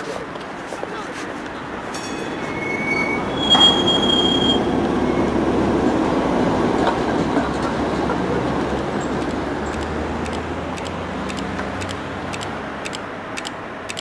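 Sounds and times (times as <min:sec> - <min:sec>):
rail vehicle passing: 0:00.0 - 0:14.0
wheels squealing: 0:02.0 - 0:05.8.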